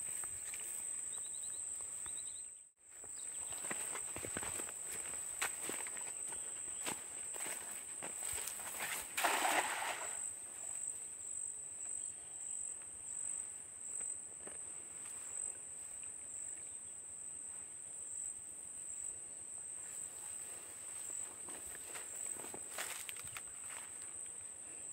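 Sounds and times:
net splashing into water: 0:08.8 - 0:10.3.

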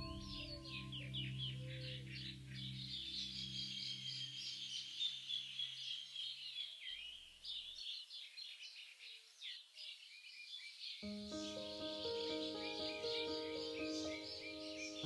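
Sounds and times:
low sustained tone: 0:00.0 - 0:04.2
songbirds chirping and twittering: 0:00.0 - 0:15.0.

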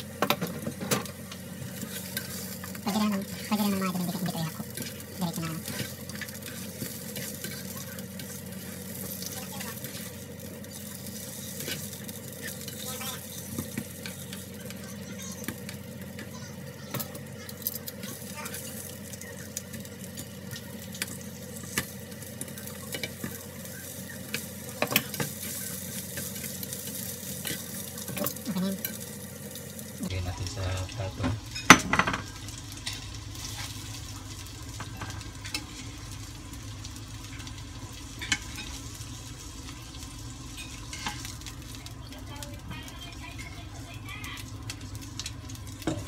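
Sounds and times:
onion rings sizzling in oil: 0:00.0 - 0:46.0
utensils scraping a pan: 0:01.8 - 0:02.7.

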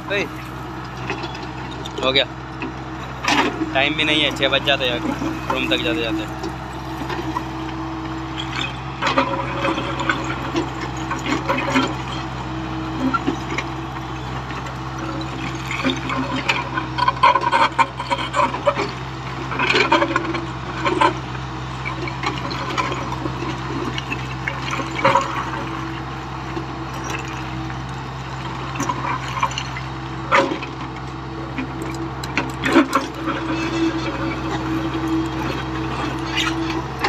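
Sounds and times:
engine whine: 0:00.0 - 0:37.0
excavator diesel engine running: 0:00.0 - 0:37.0.

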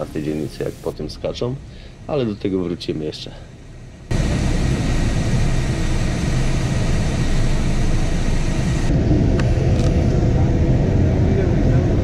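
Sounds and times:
vehicle rumbling in motion: 0:03.9 - 0:12.0.

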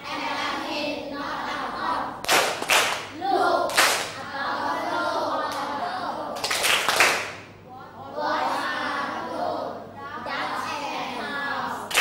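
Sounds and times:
children chanting a rhyme: 0:00.0 - 0:12.0
children clapping in unison: 0:02.2 - 0:04.2, 0:06.4 - 0:07.5.

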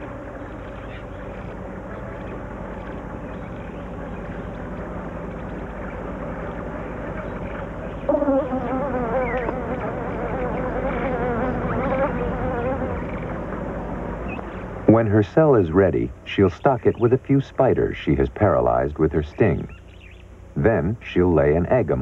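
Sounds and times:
wasp wings buzzing: 0:08.1 - 0:13.4.

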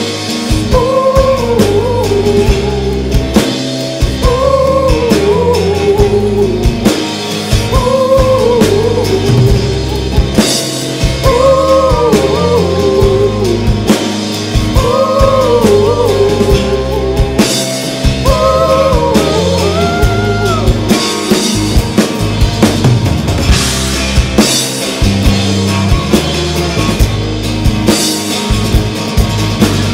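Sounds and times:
acoustic guitar: 0:00.0 - 0:29.9
drum kit: 0:00.0 - 0:29.9
electric bass: 0:00.0 - 0:29.9
wordless ooh vocals: 0:00.5 - 0:03.4, 0:04.1 - 0:10.5, 0:11.2 - 0:14.0, 0:14.6 - 0:21.2.

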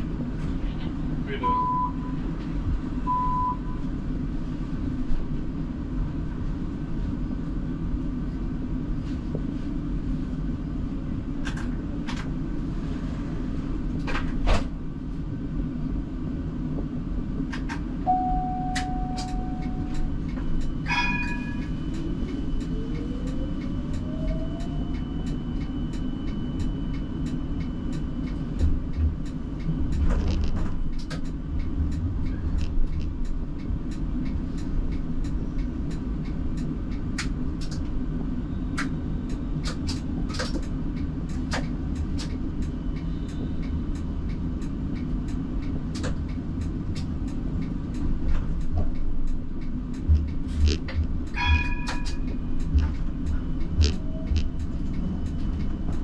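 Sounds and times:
tram wheels rumbling on rail: 0:00.0 - 0:56.0
brief ringing tone: 0:18.1 - 0:19.9.

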